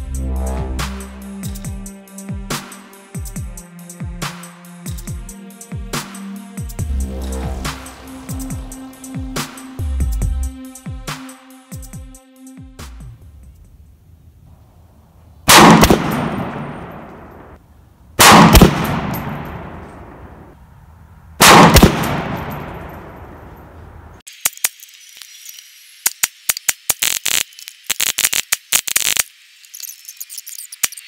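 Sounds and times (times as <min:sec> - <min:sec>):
gunshots with echoing tail: 0:15.5 - 0:17.6, 0:18.2 - 0:20.4, 0:21.4 - 0:23.6
sharp thin cracks: 0:24.3 - 0:31.0.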